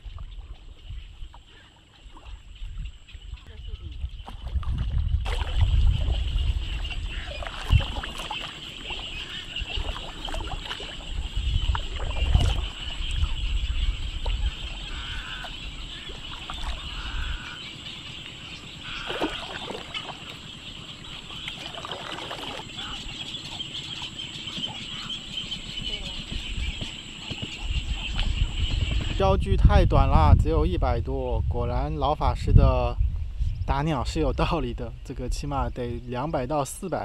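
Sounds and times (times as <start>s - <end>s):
low rumble on microphone: 0.0s - 37.0s
frog croaking calls: 5.3s - 29.2s.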